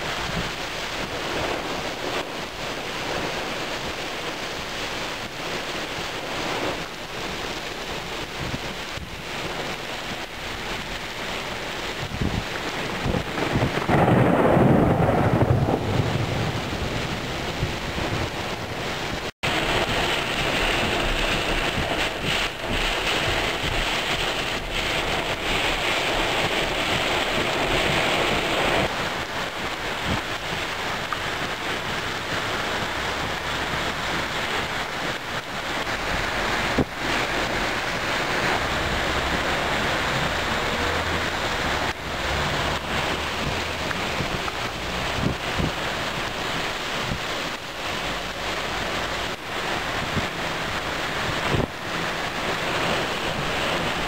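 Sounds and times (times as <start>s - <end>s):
heavy rain pouring: 0.0s - 54.0s
wind buffeting microphone: 5.2s - 47.9s, 49.2s - 54.0s
low rumble of thunder: 11.9s - 47.3s.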